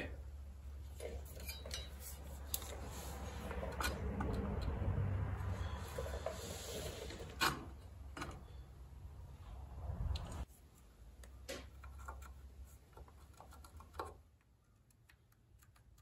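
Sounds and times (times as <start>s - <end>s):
metal clinks and scraping: 1.0s - 2.8s.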